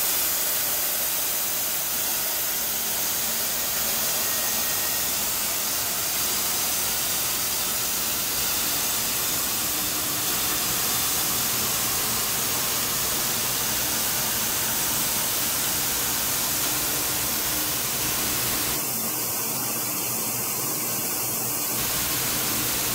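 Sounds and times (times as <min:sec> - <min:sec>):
machinery hissing: 0:00.0 - 0:22.9
faint steady hum: 0:07.3 - 0:18.8, 0:21.8 - 0:22.9.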